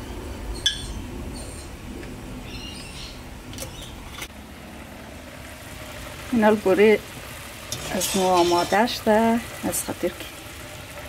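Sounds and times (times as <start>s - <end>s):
kitchenware clinking: 7.7s - 8.8s.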